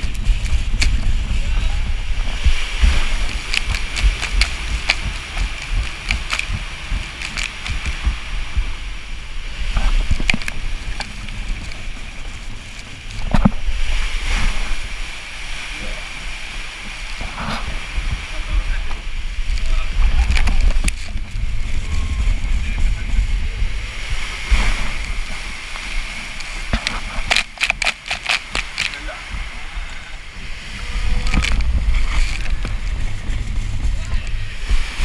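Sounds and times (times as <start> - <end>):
low rumble: 0.0 - 27.4, 29.0 - 35.0
rushing sloshing water: 0.0 - 35.0
raft knocking along tube: 2.3 - 8.7.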